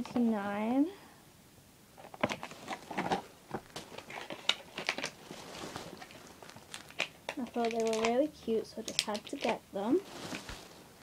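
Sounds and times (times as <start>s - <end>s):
plastic packaging crinkling: 2.0s - 11.0s.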